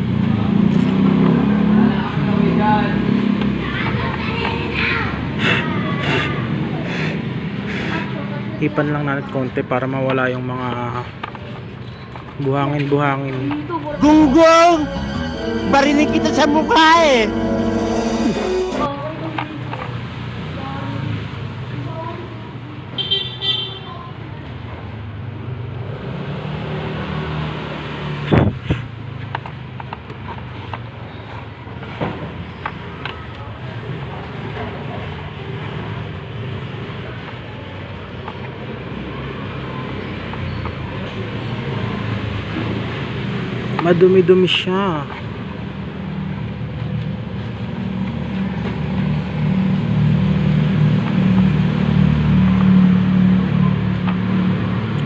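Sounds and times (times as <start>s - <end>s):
vehicle engine droning: 0.0s - 5.8s, 46.4s - 55.0s.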